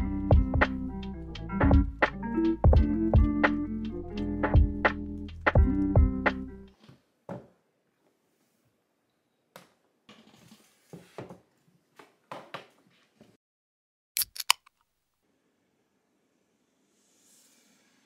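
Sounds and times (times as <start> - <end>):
sharp clicks: 14.2 - 14.8.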